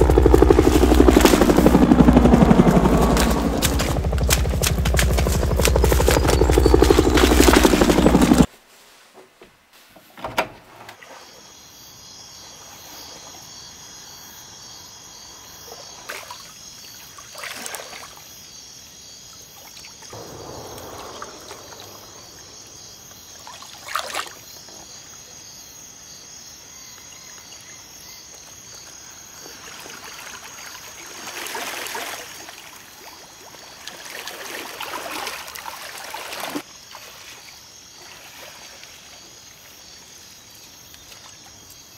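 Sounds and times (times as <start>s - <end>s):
insects chirring: 0.0s - 8.5s, 11.0s - 41.9s
water splashing while wading: 33.8s - 37.4s.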